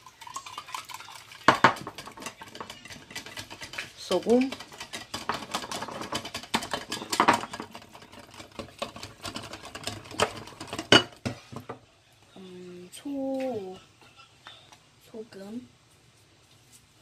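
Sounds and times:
whisk clinking on glass: 0:00.0 - 0:11.2
whisk beating eggs in glass: 0:00.0 - 0:11.3.

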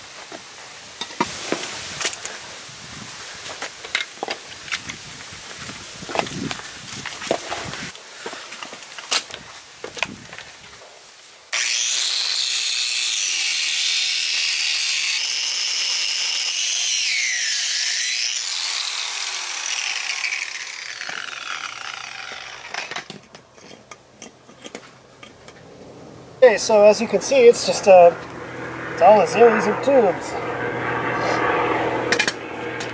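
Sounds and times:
angle grinder cutting metal: 0:11.5 - 0:23.1.

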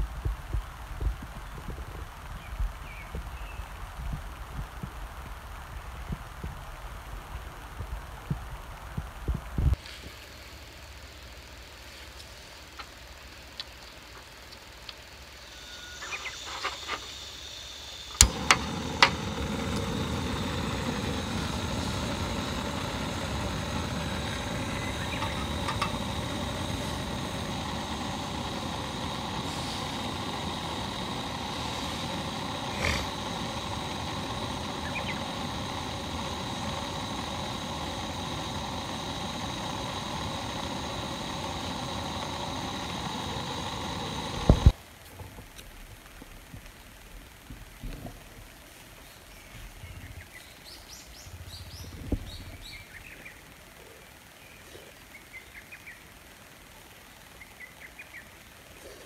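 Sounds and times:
gas burner hissing: 0:00.0 - 0:10.9, 0:13.6 - 0:44.8, 0:50.2 - 0:59.0
stove igniter clicks: 0:18.1 - 0:44.7.

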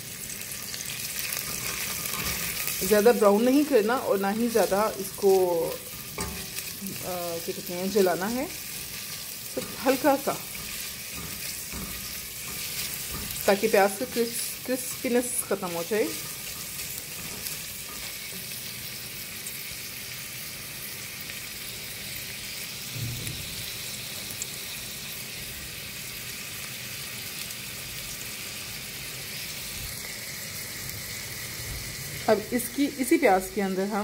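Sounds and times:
onions sizzling in a pot: 0:00.0 - 0:34.0
spatula stirring: 0:01.0 - 0:18.7.

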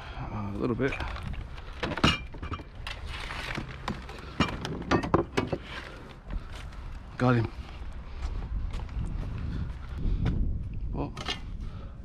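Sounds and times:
junk clinking and knocking: 0:01.7 - 0:02.8, 0:03.6 - 0:05.7.

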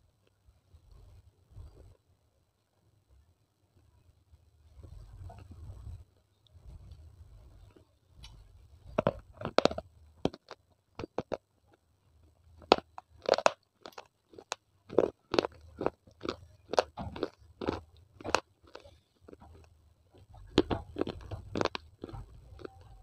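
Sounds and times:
baked clay crunching: 0:06.8 - 0:23.0
crunchy chewing: 0:07.6 - 0:23.0.

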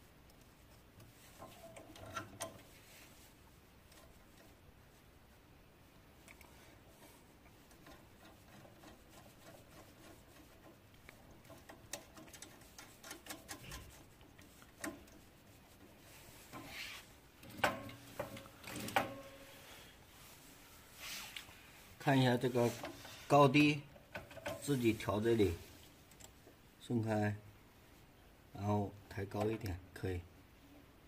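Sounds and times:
small metal clicks and rubbing: 0:00.2 - 0:02.9, 0:03.8 - 0:04.6, 0:06.2 - 0:19.4, 0:22.6 - 0:25.1, 0:25.8 - 0:26.6.

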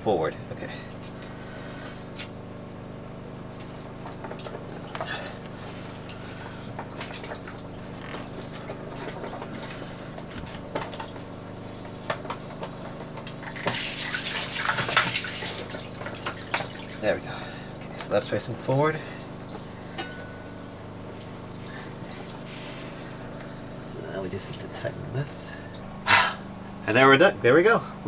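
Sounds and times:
steady low hum: 0:00.0 - 0:28.0
water splashing and gurgling: 0:03.6 - 0:25.2.

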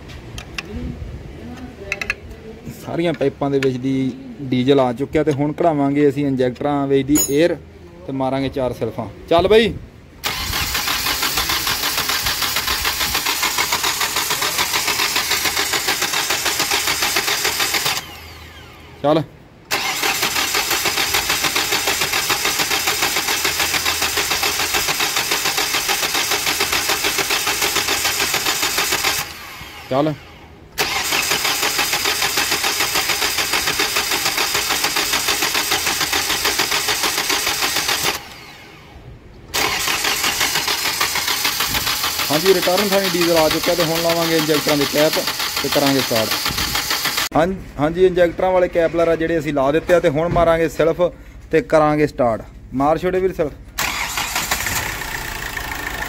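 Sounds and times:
starter motor cranking engine: 0:10.2 - 0:19.0, 0:19.7 - 0:47.4, 0:53.7 - 0:56.0.

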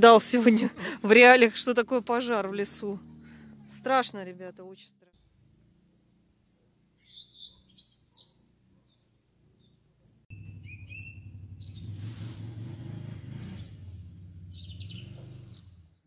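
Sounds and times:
songbirds chirping: 0:00.0 - 0:16.0
loud low rumble: 0:10.3 - 0:15.9.

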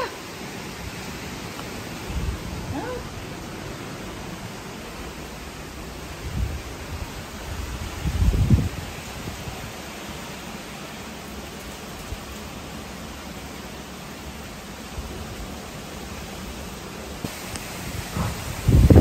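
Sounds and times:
heavy rain hissing: 0:00.0 - 0:19.0.

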